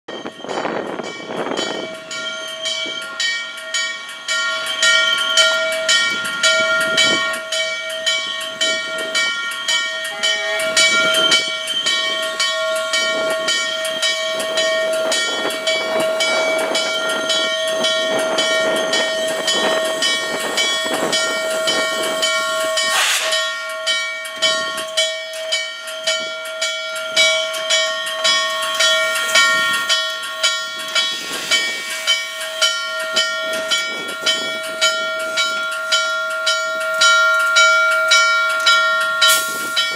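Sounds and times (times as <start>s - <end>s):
locomotive bell ringing: 0.1s - 39.9s
steam locomotive rolling: 0.1s - 39.9s
steam hissing: 8.2s - 23.7s, 28.3s - 35.6s, 39.2s - 39.9s.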